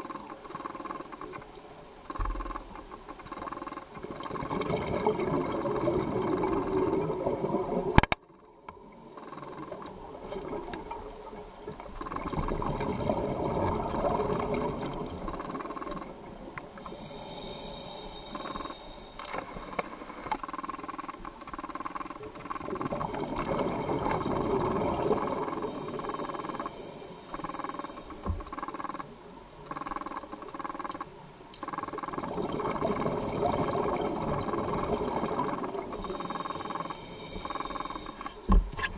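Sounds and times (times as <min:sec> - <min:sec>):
faint fish clicks: 0:00.0 - 0:04.3, 0:25.5 - 0:32.4
scuba regulator inhalation hiss: 0:16.8 - 0:20.3, 0:25.4 - 0:28.9, 0:35.8 - 0:38.6.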